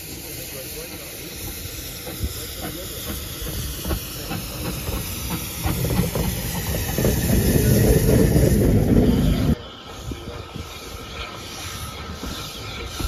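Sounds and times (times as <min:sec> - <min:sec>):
low train rumble: 0:00.0 - 0:13.0
steam locomotive hissing: 0:00.0 - 0:13.0
wheels knocking on rails: 0:02.1 - 0:09.6.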